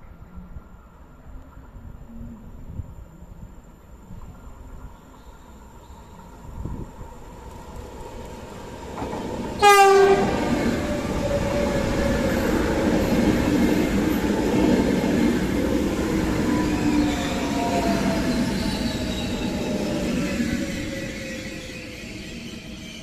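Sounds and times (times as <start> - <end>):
train wheels rumbling on rails: 6.2 - 23.0
train horn blast: 9.6 - 10.9.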